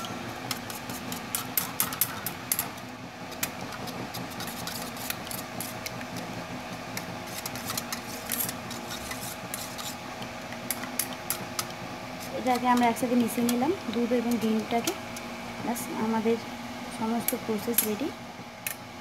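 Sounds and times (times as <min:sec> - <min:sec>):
whisk scraping in metal bowl: 0:03.8 - 0:05.9, 0:07.2 - 0:10.0.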